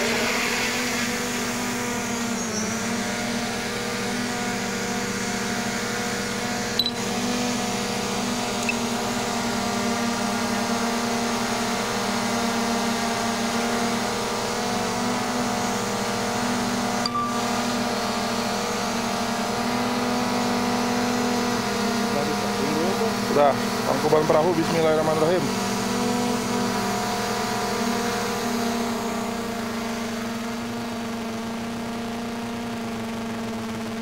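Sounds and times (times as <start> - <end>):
drone propellers buzzing: 0.0 - 34.0
small click: 6.8 - 7.0, 8.6 - 8.8.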